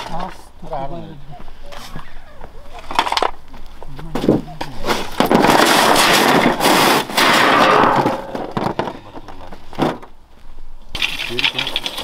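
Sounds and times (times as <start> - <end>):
stones knocking: 4.1 - 10.1, 10.9 - 12.0.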